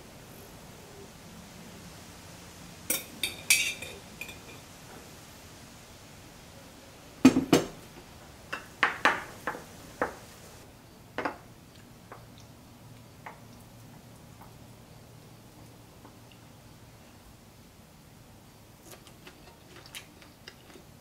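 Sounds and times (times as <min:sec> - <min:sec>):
metal spoon clinking on glass: 0:02.9 - 0:04.6.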